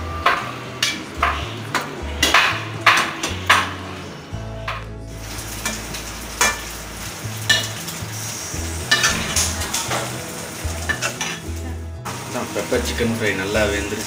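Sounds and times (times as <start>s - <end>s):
spoon knocking and scraping pan: 0.3s - 3.8s
chicken sizzling in pan: 4.8s - 14.0s.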